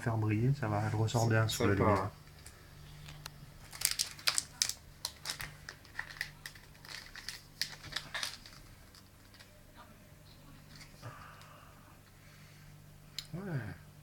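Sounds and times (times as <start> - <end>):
plastic wrapper crinkling: 2.2 - 9.6.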